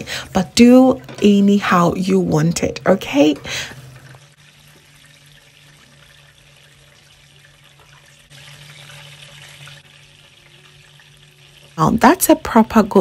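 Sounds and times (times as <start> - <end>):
meat deep-frying in oil: 0.0 - 13.0.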